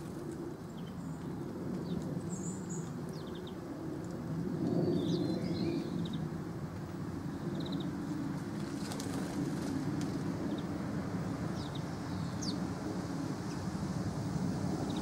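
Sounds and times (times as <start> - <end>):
sparrow chirping: 7.3 - 7.9, 11.5 - 12.6
wings fluttering: 8.3 - 10.6.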